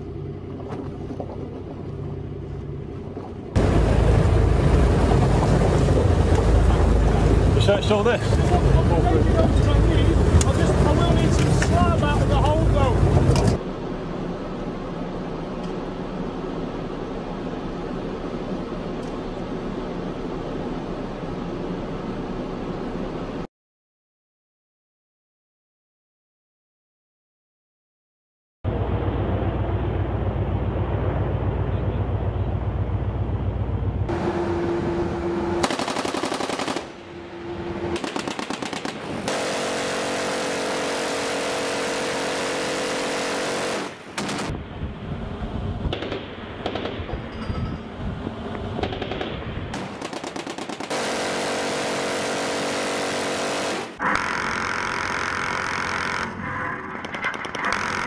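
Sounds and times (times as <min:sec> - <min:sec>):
machine-gun fire: 0:35.6 - 0:37.0, 0:37.9 - 0:44.5, 0:45.9 - 0:47.1, 0:48.8 - 0:54.0.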